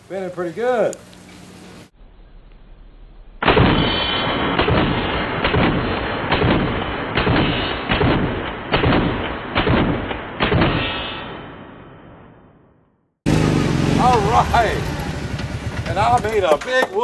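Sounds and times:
shotgun shots: 3.4 - 11.9.

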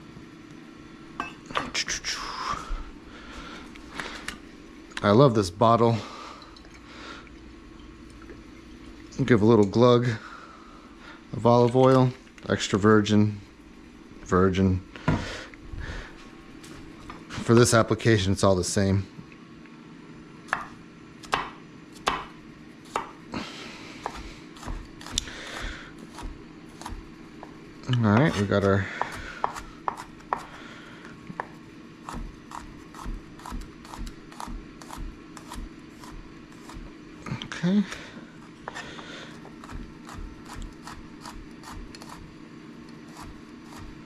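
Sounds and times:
knife chopping on wooden board: 20.5 - 23.2, 24.0 - 25.2, 26.0 - 30.6.

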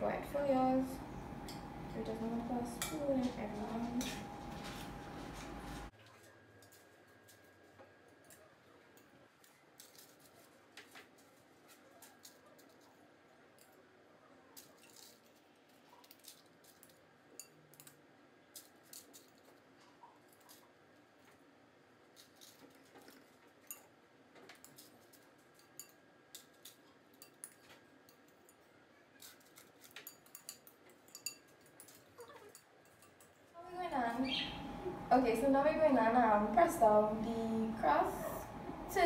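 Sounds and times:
spoon scraping glass bowl: 29.3 - 33.2.

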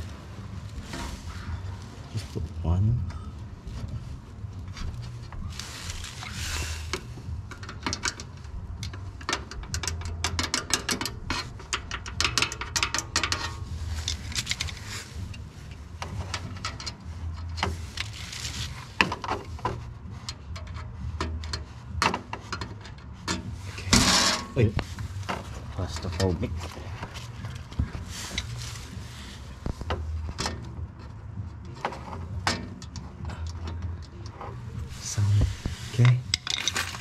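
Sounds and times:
steady low hum: 0.0 - 10.4, 11.0 - 37.0
metal parts clinking and rattling: 5.3 - 15.4, 31.8 - 37.0.

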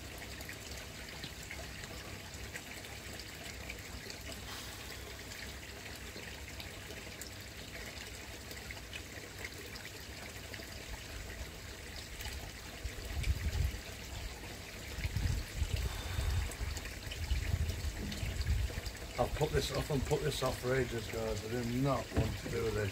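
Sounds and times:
pond water trickling: 0.0 - 22.9
low rumbles: 15.2 - 20.4.

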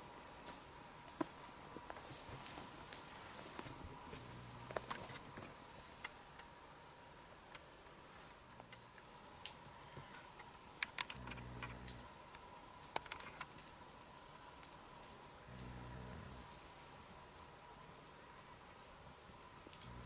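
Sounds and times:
low snore: 15.5 - 16.5.

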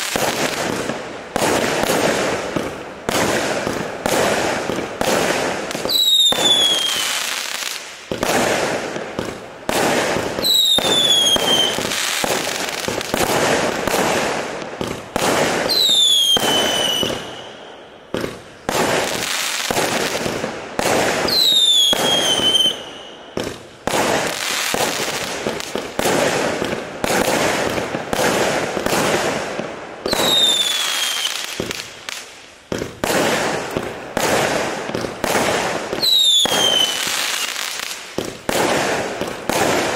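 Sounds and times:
fireworks shots and bursts: 0.0 - 39.9
falling firework whistle: 5.7 - 7.8, 10.4 - 12.4, 15.6 - 18.3, 21.2 - 23.6, 30.0 - 31.8, 35.9 - 37.8.

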